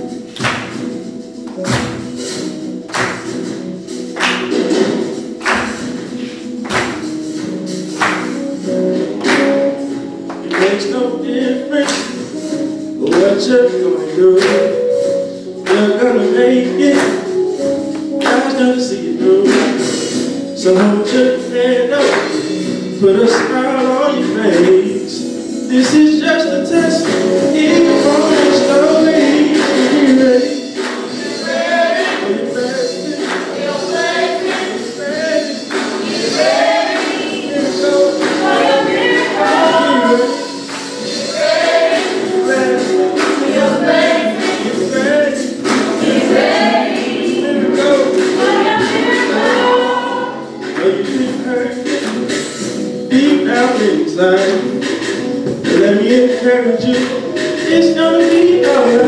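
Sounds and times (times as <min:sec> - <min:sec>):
gospel group singing: 0:00.0 - 0:59.0
hand-clapping: 0:00.3 - 0:08.6, 0:09.2 - 0:10.9, 0:11.8 - 0:12.2, 0:13.0 - 0:13.4, 0:14.4 - 0:14.7, 0:15.6 - 0:15.9, 0:16.9 - 0:17.3, 0:17.9 - 0:18.6, 0:22.0 - 0:22.5, 0:23.3 - 0:23.6, 0:27.0 - 0:27.4, 0:29.6 - 0:30.0, 0:30.8 - 0:32.4, 0:33.2 - 0:33.8, 0:34.4 - 0:34.9, 0:35.6 - 0:37.5, 0:38.2 - 0:39.4, 0:40.7 - 0:43.8, 0:44.4 - 0:44.7, 0:45.6 - 0:46.2, 0:51.8 - 0:52.6, 0:56.9 - 0:57.4.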